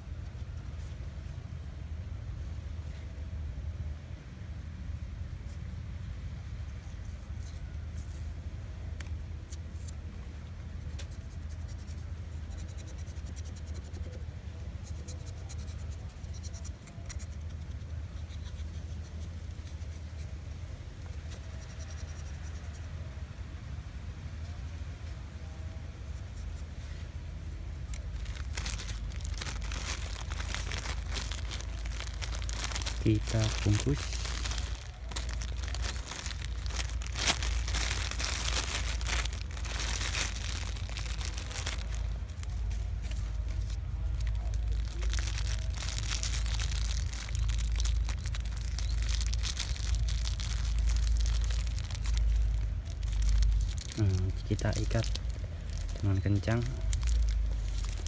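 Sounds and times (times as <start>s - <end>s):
steady low rumble: 17.4s - 58.0s
plastic string rustling: 27.8s - 58.0s
plastic sheet crinkling: 27.9s - 58.0s.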